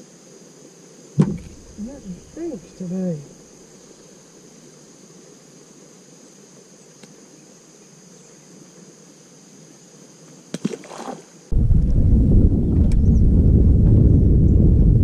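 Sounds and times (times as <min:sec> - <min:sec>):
insect chorus: 0:00.0 - 0:14.8
sharp knocks: 0:01.2 - 0:01.8
loud low rushing noise: 0:11.5 - 0:15.0.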